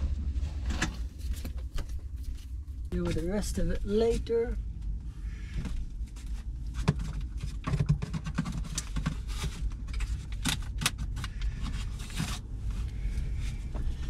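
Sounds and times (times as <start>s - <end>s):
steady low rumble: 0.0s - 7.7s, 8.5s - 14.0s
clicks knocks and rustles of handling: 6.2s - 12.4s.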